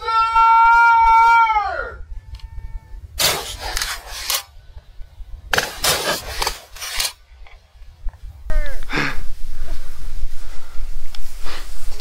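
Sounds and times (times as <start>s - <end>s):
person shouting: 0.0s - 2.0s
rustling through dry grass: 9.2s - 12.0s.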